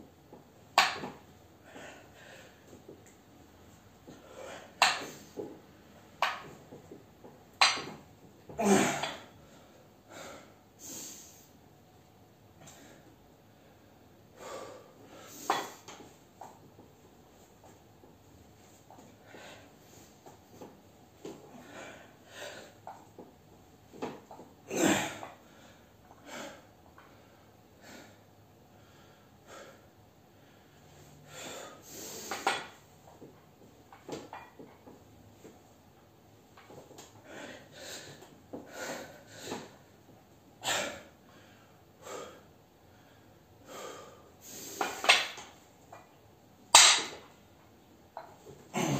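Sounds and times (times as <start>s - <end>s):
man breathing heavily: 1.6s - 2.9s, 4.0s - 5.6s, 8.6s - 11.6s, 12.6s - 15.9s, 21.4s - 22.8s, 25.4s - 32.6s, 37.1s - 39.9s, 40.6s - 45.1s.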